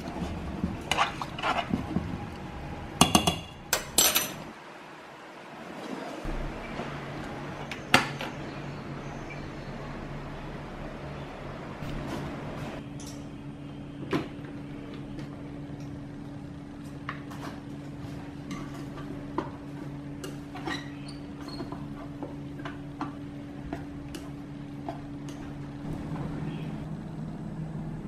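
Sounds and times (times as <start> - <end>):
steady low hum: 21.2 - 28.0.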